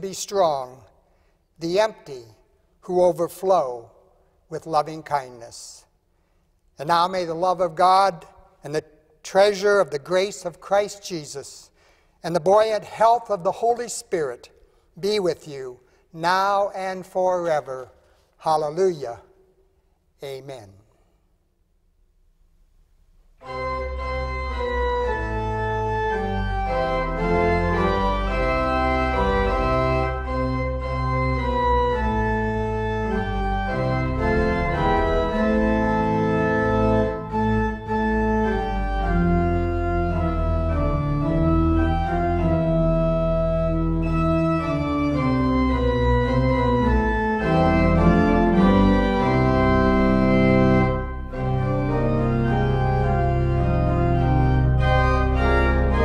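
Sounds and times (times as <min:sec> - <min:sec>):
church organ chords: 0:00.0 - 0:05.9, 0:06.7 - 0:21.0, 0:23.4 - 0:56.0
deep organ pedal bass: 0:23.4 - 0:56.0.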